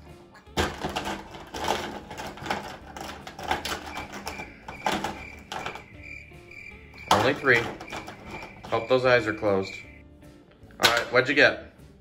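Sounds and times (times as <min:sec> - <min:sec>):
markers clattering in a bowl: 0:00.4 - 0:06.0, 0:07.0 - 0:09.6.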